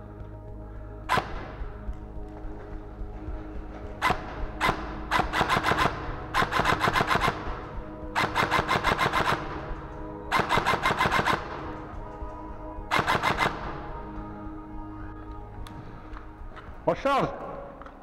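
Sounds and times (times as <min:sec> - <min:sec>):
background music: 0:00.0 - 0:18.0
airsoft rifle firing bursts: 0:04.0 - 0:07.6, 0:08.2 - 0:09.6, 0:10.3 - 0:11.6, 0:12.9 - 0:13.6.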